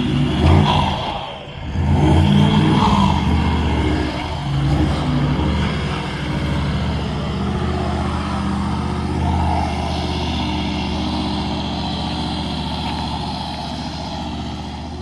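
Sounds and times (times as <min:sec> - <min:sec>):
engine running under load: 0:00.0 - 0:15.0.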